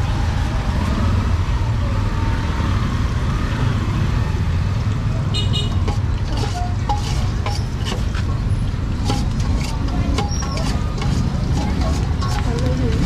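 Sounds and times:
road traffic rumble: 0.0 - 13.0
clatter: 5.8 - 8.3, 9.0 - 13.0.

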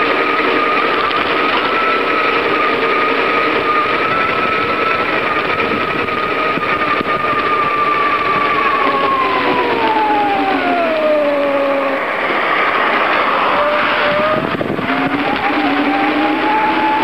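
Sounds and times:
bicycle whine: 0.0 - 17.0
wind and road rush: 0.0 - 17.0.

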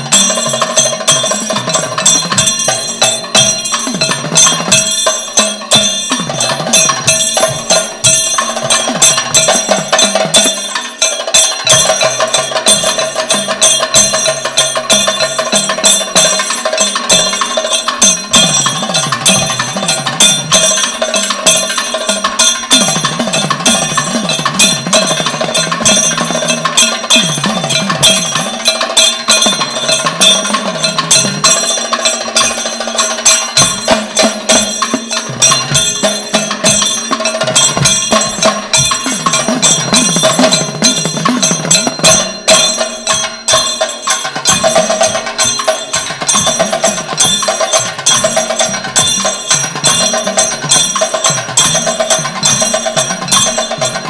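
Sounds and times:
drums: 0.0 - 54.0
hand cymbals: 0.0 - 54.0
ringing gong: 0.0 - 54.0.

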